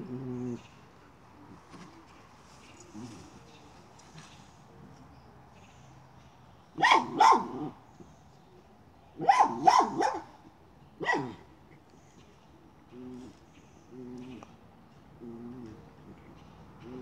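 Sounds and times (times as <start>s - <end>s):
dog barking: 6.8s - 7.8s, 9.2s - 10.3s, 11.0s - 11.4s.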